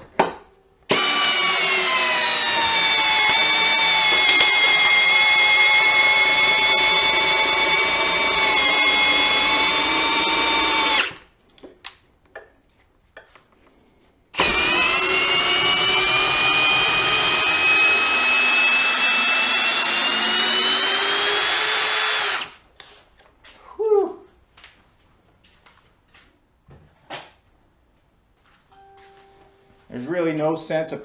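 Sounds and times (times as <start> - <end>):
drill motor whining: 0.9 - 11.2, 14.4 - 22.6.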